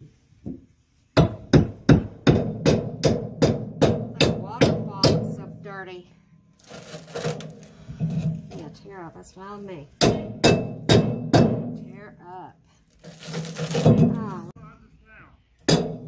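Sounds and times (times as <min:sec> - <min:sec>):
hammer striking steel bar: 0:10.0 - 0:11.9, 0:15.6 - 0:16.0.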